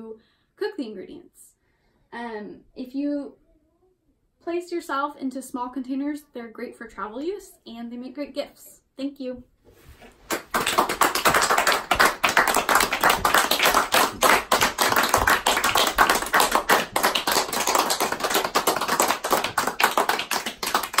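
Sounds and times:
people applauding: 10.3 - 21.0.

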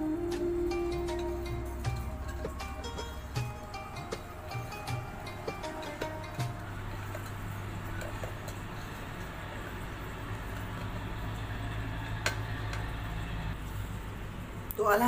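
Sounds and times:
steady low hum with hiss: 0.0 - 15.0
metal spoon stirring jelly: 5.3 - 11.6.

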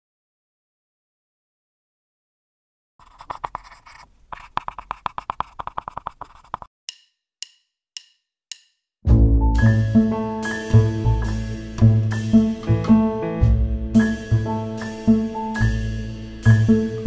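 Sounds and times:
keystroke clicks typing: 3.0 - 6.7
sharp ticks: 3.1 - 8.7.

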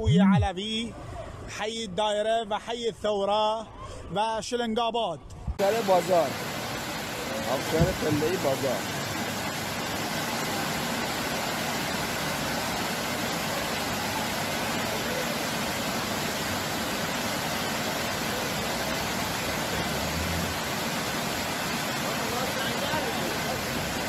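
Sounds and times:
floodwater rushing down steps: 5.6 - 24.0.

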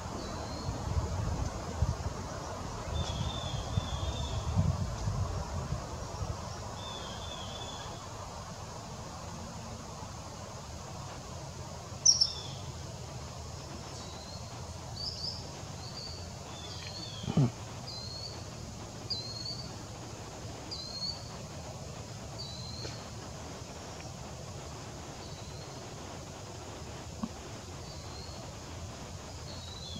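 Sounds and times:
outdoor background hiss: 0.0 - 29.9
bird chirping: 12.0 - 12.7, 13.9 - 19.7.

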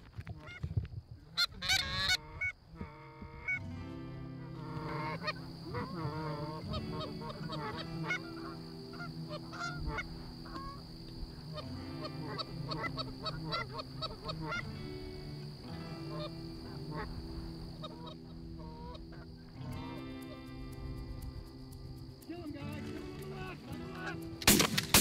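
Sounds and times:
geese honking: 1.4 - 20.6
soft background music: 3.5 - 25.0.

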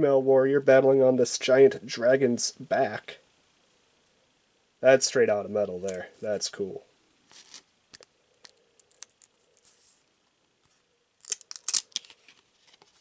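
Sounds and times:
sharp card snaps: 11.2 - 12.2
cards clicking and rustling: 11.2 - 13.0.

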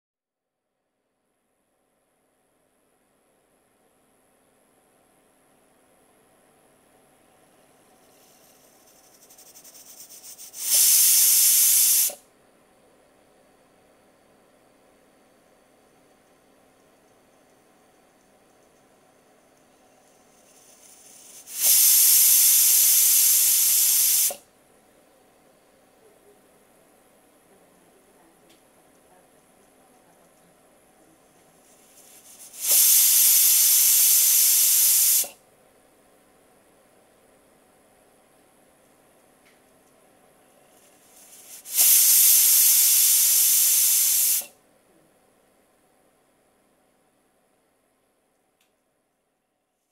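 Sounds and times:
pressure cooker hissing steam: 8.0 - 12.2, 19.8 - 24.5, 31.6 - 35.4, 40.7 - 44.6.

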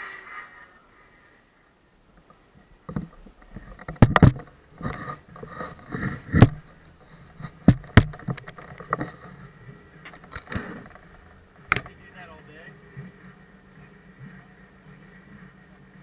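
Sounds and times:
motorboat engine hum: 0.0 - 16.0
sharp knocks and thumps: 2.2 - 6.7, 7.3 - 9.3, 10.0 - 12.2.

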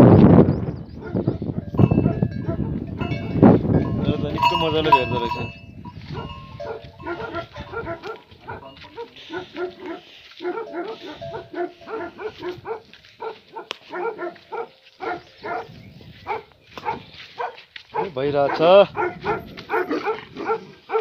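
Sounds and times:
dog barking: 1.0 - 2.8, 6.1 - 21.0.

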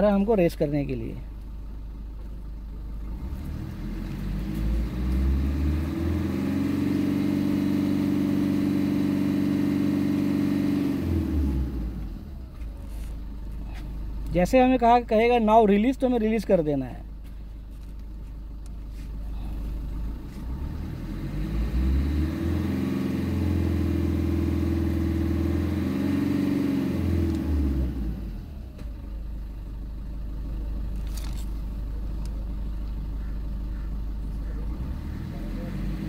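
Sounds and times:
diesel engine revving: 1.6 - 36.0.

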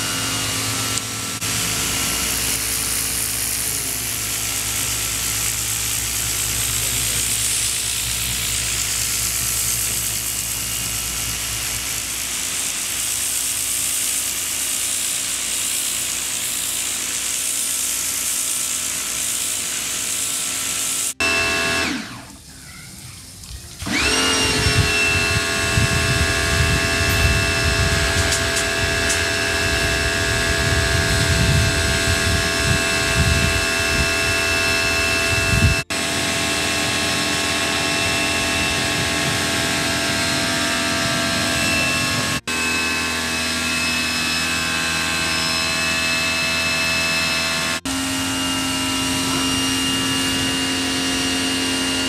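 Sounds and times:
water jet hissing on concrete: 0.0 - 21.2
pressure washer motor whining: 0.0 - 22.6, 23.2 - 52.0.

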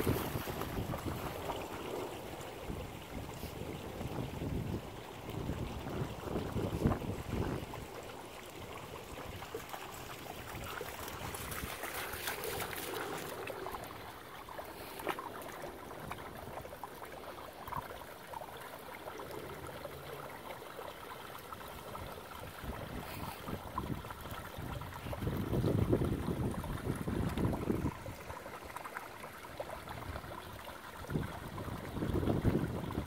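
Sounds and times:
stream trickling over stones: 0.0 - 33.0
dog splashing in water: 9.9 - 14.1.

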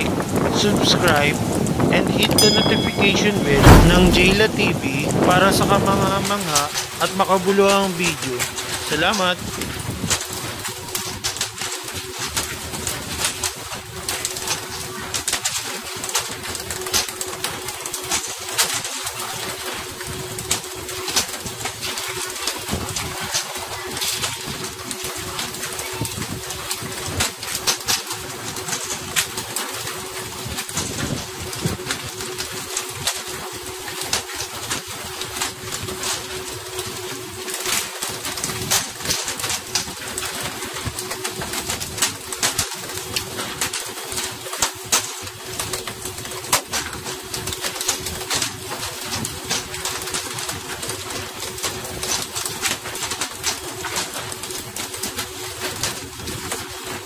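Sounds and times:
wind and spray rushing: 1.9 - 5.8.

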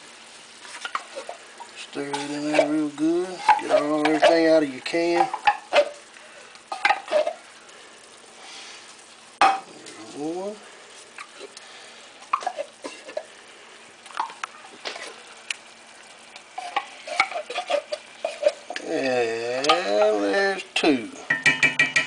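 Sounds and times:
faint sizzle from pan: 0.0 - 22.0
metal utensil scraping in tin can: 2.0 - 6.0, 16.6 - 18.7.

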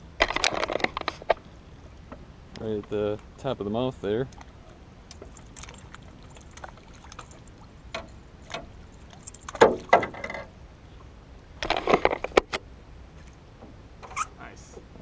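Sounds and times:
fish handling clicks and rattles: 0.2 - 1.4, 4.3 - 10.5.

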